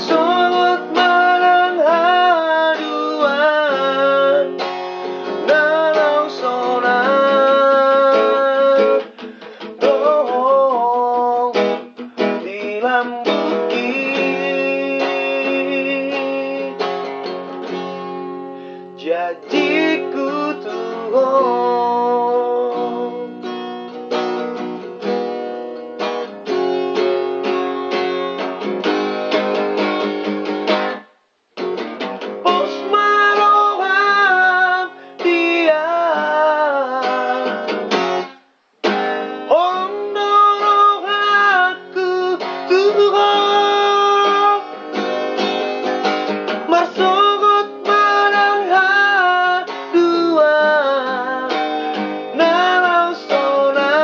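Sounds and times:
man singing: 0:00.0 - 0:17.0, 0:18.9 - 0:23.5, 0:32.4 - 0:38.0, 0:38.9 - 0:54.0
acoustic guitar: 0:00.0 - 0:54.0.

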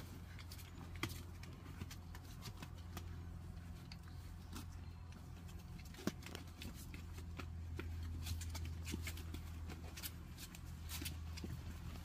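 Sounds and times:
steady low hum: 0:00.0 - 0:12.0
puppy claws scrabbling on cardboard: 0:05.4 - 0:12.0.

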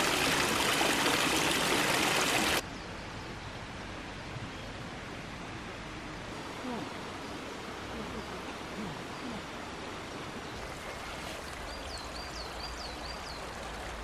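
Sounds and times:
stream rushing over rocks: 0:00.0 - 0:02.6.

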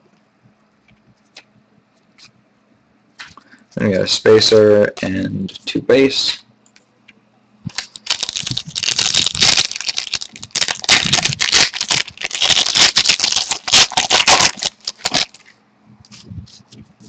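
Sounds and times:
card wrappers crinkling: 0:07.7 - 0:16.7.

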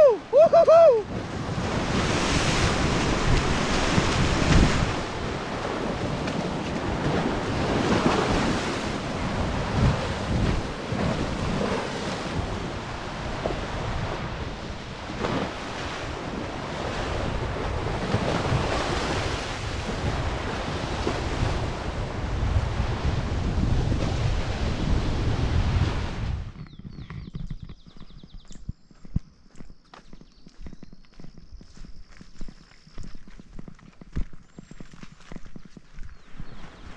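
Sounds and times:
wind buffeting the microphone: 0:00.0 - 0:36.9
waves breaking on pebbly beach: 0:01.0 - 0:21.9.

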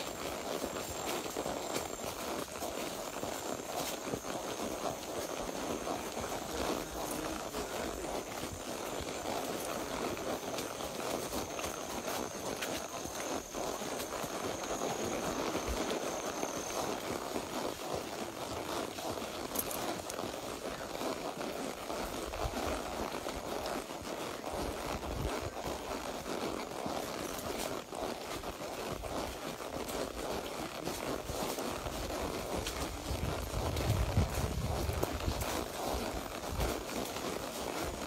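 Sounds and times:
horse hoof steps: 0:00.0 - 0:38.0
wind gusts on microphone: 0:32.6 - 0:35.5.

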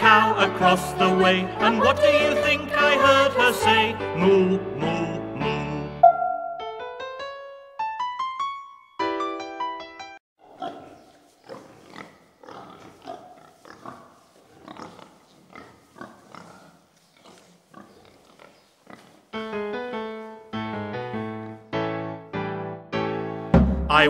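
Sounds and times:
piano music: 0:00.0 - 0:10.2, 0:19.4 - 0:24.0.

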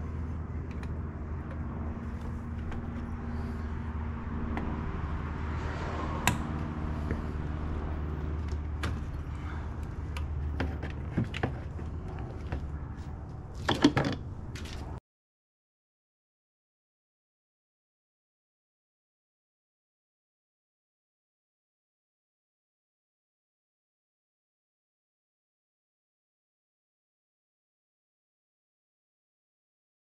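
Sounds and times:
steady low hum: 0:00.0 - 0:13.6.

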